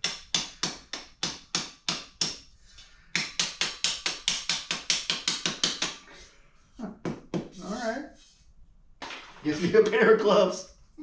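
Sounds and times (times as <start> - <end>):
hammer tapping on steel: 3.2 - 6.0.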